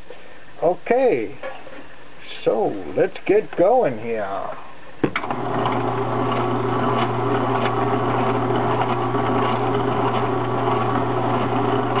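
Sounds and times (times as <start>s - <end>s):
juicer motor humming: 5.2s - 12.0s.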